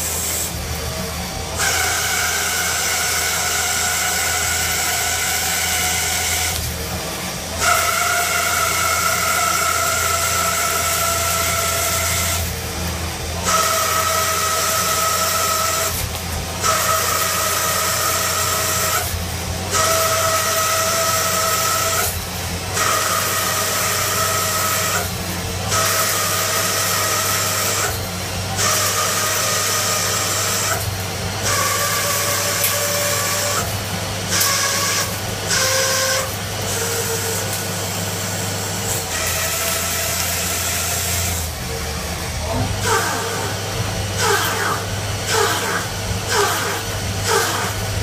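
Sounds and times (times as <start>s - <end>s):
lathe cutting hiss and whine: 0.0s - 48.0s.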